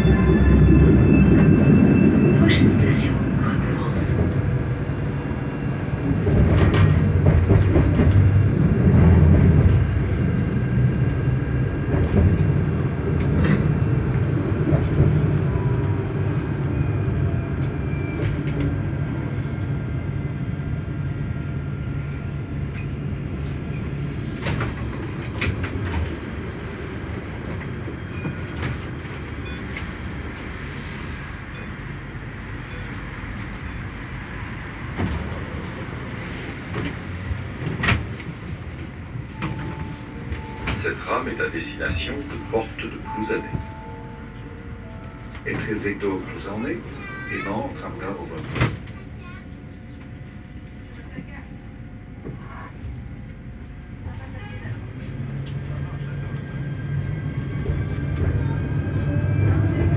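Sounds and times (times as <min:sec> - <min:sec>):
tram wheels rumbling: 0:00.0 - 0:59.9.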